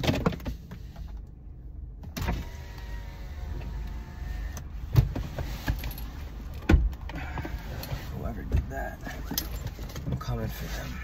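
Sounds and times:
small electric motor whirring: 0:02.4 - 0:04.6
sharp knocks inside car: 0:06.6 - 0:07.6.

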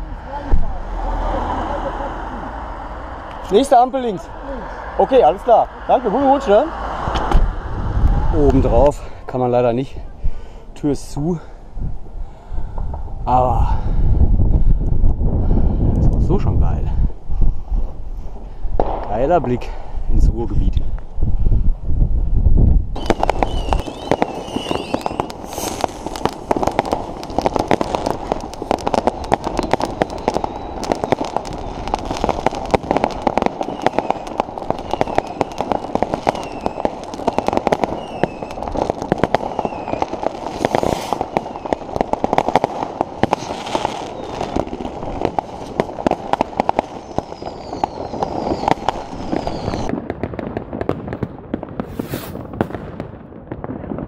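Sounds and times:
loud firework bangs: 0:00.0 - 0:09.3, 0:18.3 - 0:20.1, 0:22.9 - 0:54.0
fireworks crackling and popping: 0:00.0 - 0:54.0
whistling rockets: 0:23.0 - 0:50.0, 0:51.7 - 0:52.8.

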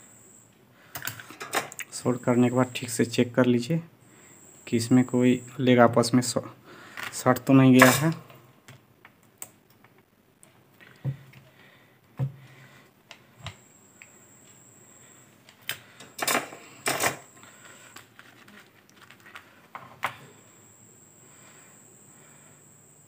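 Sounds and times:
circuit board scraping rustles: 0:17.5 - 0:20.0.

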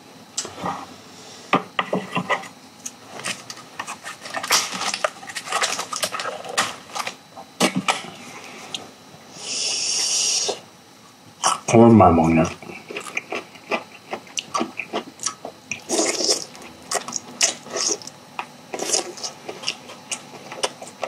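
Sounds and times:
steady hiss: 0:08.2 - 0:10.7.

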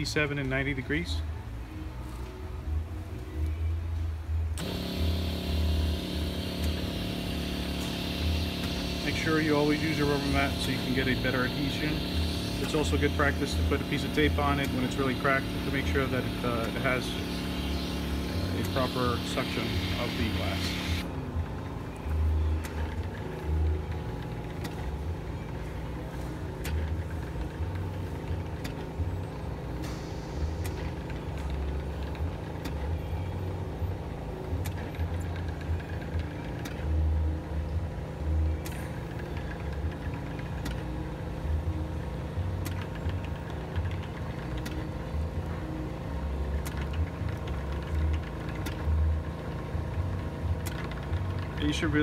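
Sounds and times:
machine humming: 0:04.6 - 0:52.0
scattered clicks: 0:42.6 - 0:44.9, 0:46.6 - 0:49.2, 0:49.8 - 0:52.0.

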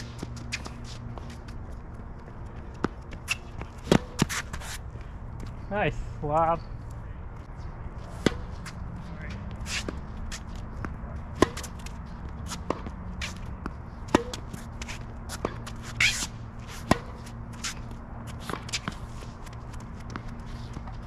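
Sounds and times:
shoes squeaking on court: 0:00.0 - 0:05.7, 0:06.5 - 0:21.0
tennis ball hit and bouncing: 0:02.7 - 0:04.7, 0:08.1 - 0:21.0.

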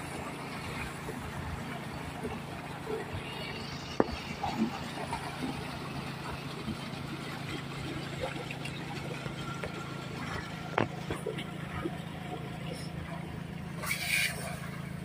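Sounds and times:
engine humming: 0:00.0 - 0:15.0.

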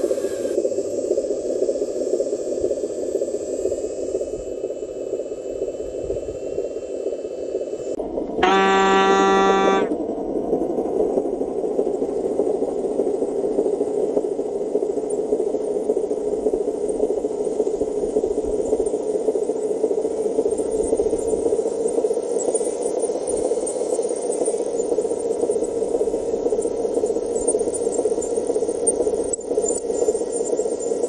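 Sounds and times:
toy truck electric motor whirring: 0:08.4 - 0:09.9
horn honk: 0:08.4 - 0:10.0.

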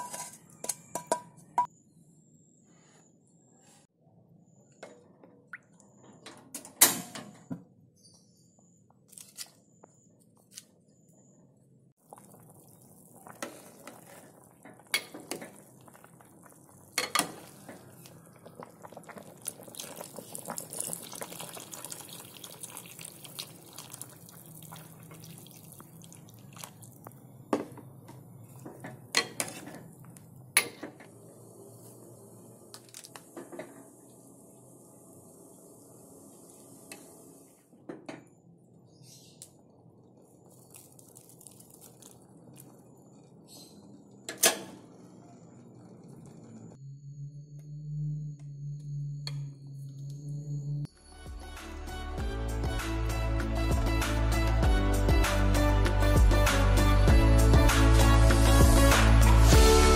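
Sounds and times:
broth boiling in a pot: 0:12.0 - 0:27.8, 0:39.6 - 0:46.8.

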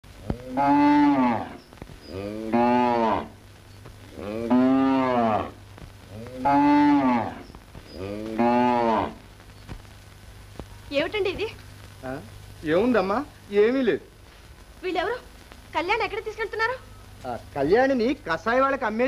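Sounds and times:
cow mooing: 0:00.2 - 0:03.4, 0:04.2 - 0:07.4, 0:08.0 - 0:09.2.

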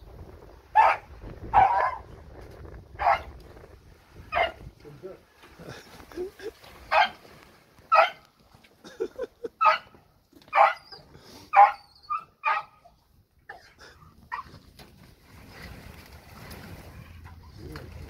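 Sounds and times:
dog barking: 0:00.8 - 0:02.0, 0:03.0 - 0:03.3, 0:04.3 - 0:04.6, 0:06.9 - 0:07.2, 0:07.9 - 0:08.2, 0:09.6 - 0:09.9, 0:10.5 - 0:12.8
dog yelping: 0:07.9 - 0:08.2, 0:09.6 - 0:09.9, 0:10.5 - 0:13.0, 0:14.3 - 0:14.5.

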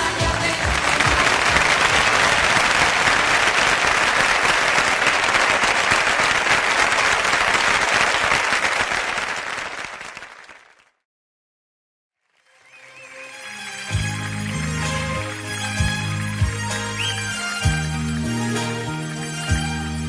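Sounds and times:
song music: 0:00.0 - 0:02.7, 0:12.6 - 0:20.0
audience applause: 0:00.0 - 0:11.0, 0:12.8 - 0:17.5.

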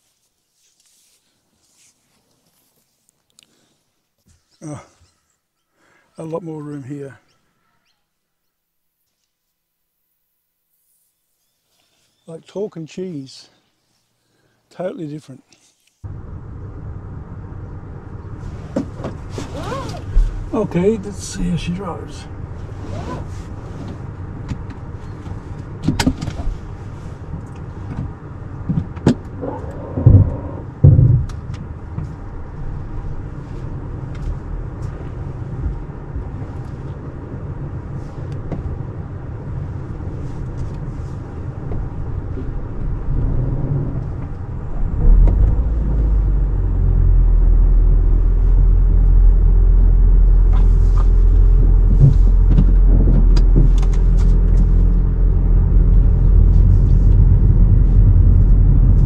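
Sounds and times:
car interior rumble: 0:16.0 - 0:59.0
knocks and clunks: 0:27.9 - 0:32.1, 0:42.8 - 0:46.4, 0:51.8 - 0:54.8.

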